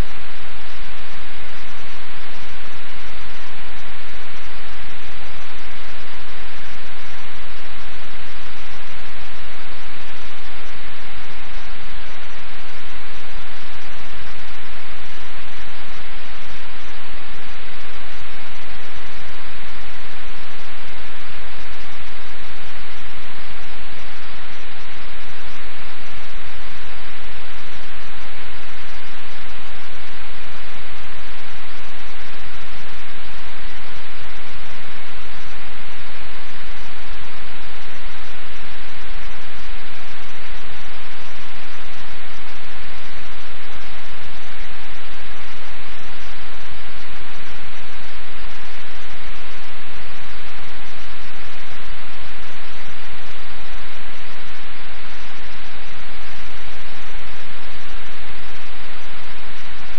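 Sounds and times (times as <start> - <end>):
static hiss: 0.0 - 59.9.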